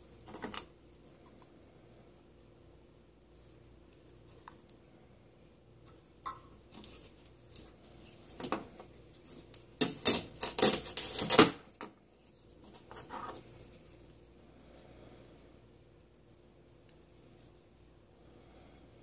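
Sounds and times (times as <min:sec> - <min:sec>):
velcro tearing apart: 0:09.8 - 0:11.6.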